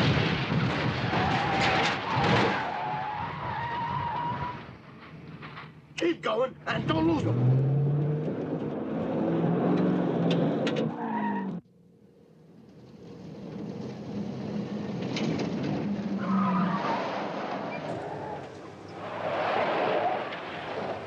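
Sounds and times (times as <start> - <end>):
car engines running hard: 6.6 - 21.0
truck engine approaching: 6.6 - 21.0.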